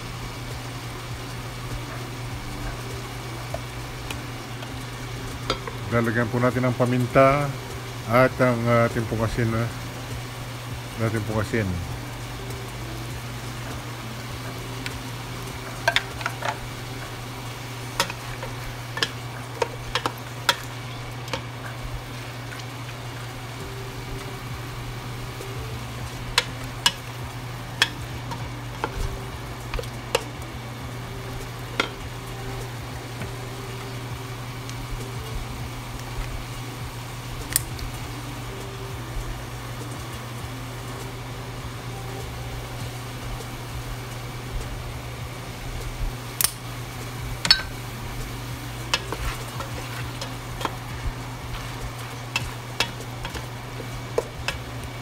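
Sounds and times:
chicken sizzling in pot: 0.0 - 55.0
low hum: 0.0 - 55.0.

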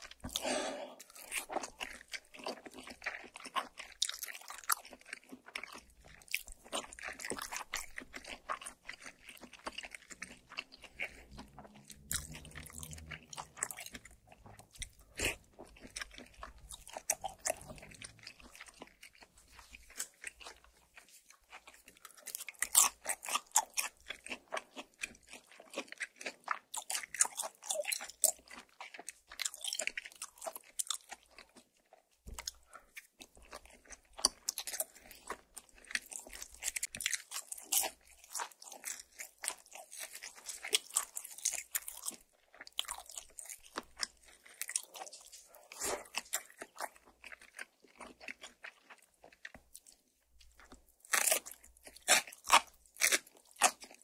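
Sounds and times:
food crunching while chewing: 0.0 - 54.0
wet mouth sounds: 43.6 - 49.6.

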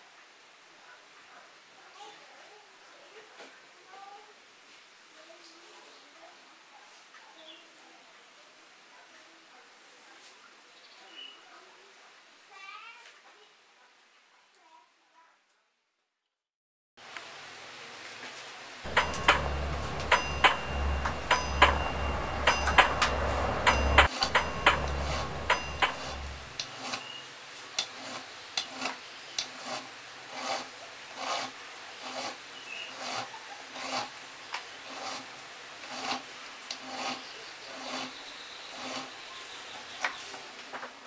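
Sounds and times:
low hum: 18.9 - 26.6
file rasping on metal: 18.9 - 27.1, 27.8 - 34.2, 34.8 - 39.3.

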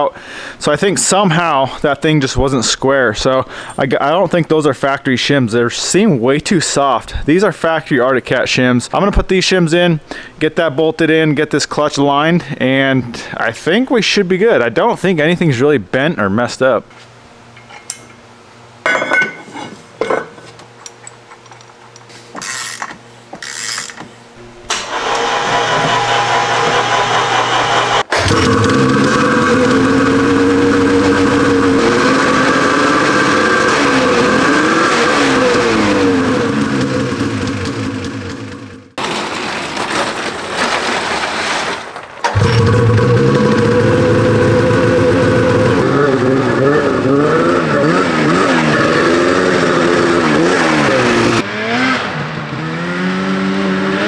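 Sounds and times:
metal parts clinking: 18.9 - 24.0
snowmobile engine starting and idling: 24.7 - 39.0, 42.2 - 53.6
sled scraping over gravel: 39.0 - 44.4.

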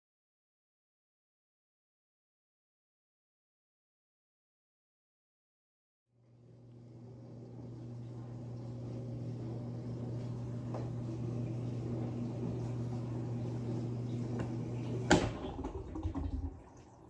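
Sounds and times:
dishwasher humming: 6.3 - 17.0.

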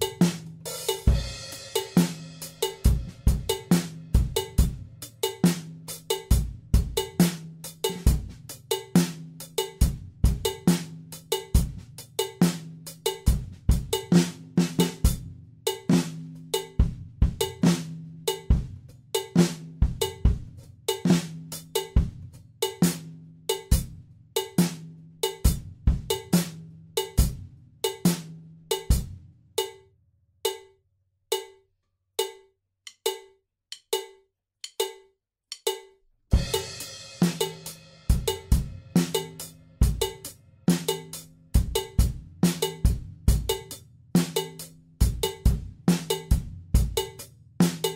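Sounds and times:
drum kit playing: 0.0 - 29.8, 30.5 - 30.7, 31.3 - 31.6, 32.2 - 47.9
metronome click: 30.5 - 31.6, 32.2 - 36.0.

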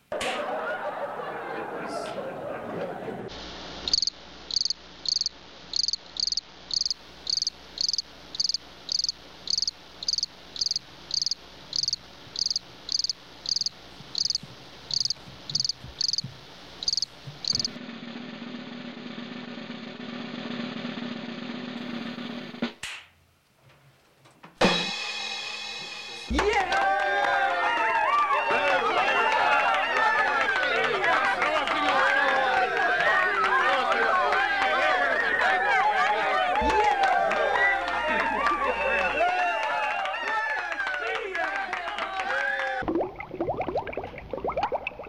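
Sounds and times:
steady low hum: 3.3 - 20.2
cricket chirping: 3.9 - 16.2, 16.8 - 17.8.

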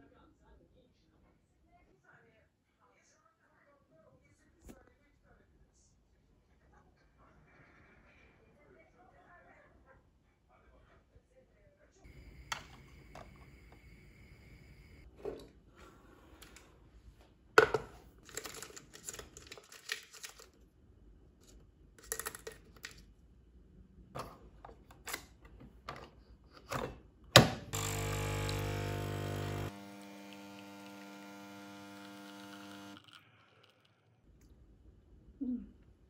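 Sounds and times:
coffee machine pump humming: 12.1 - 15.0, 27.8 - 33.8.

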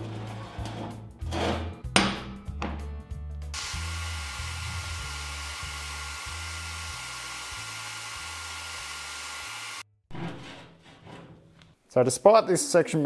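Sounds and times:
welding arc hissing: 3.6 - 9.8.

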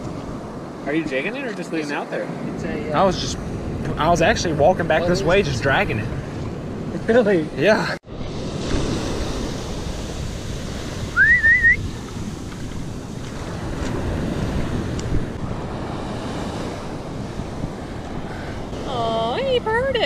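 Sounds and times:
ocean surf washing up: 0.0 - 20.0
wind buffeting the microphone: 2.3 - 20.0
rising wavering whistle: 11.1 - 11.8.

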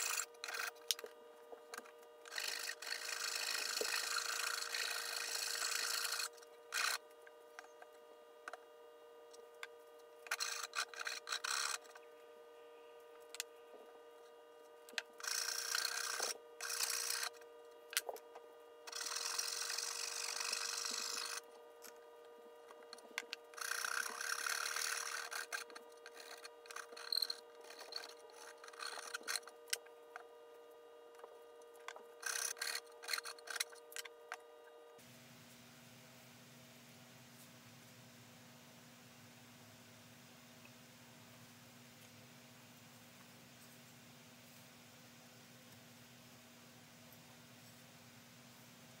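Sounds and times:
file scraping wood: 0.0 - 0.9, 2.3 - 7.0, 10.3 - 12.0, 15.2 - 17.4, 18.9 - 21.4, 23.5 - 29.8, 32.2 - 33.8
faint steady hum: 0.0 - 49.0.

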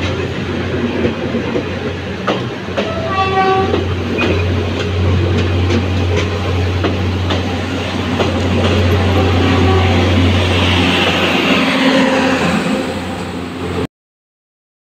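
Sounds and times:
train wheels clacking over rail joints: 0.0 - 11.7
train rolling hum: 0.0 - 13.9.

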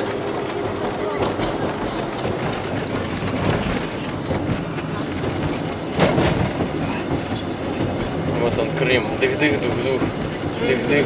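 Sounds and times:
road rumble: 0.0 - 11.0
tyres knocking over road joints: 0.0 - 11.0.

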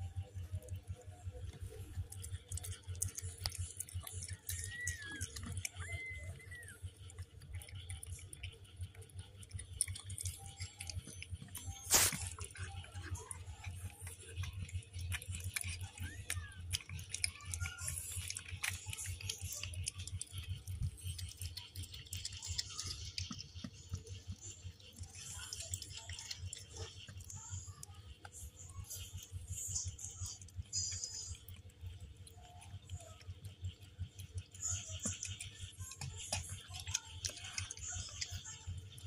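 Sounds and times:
cat licking wetly: 1.9 - 27.6.

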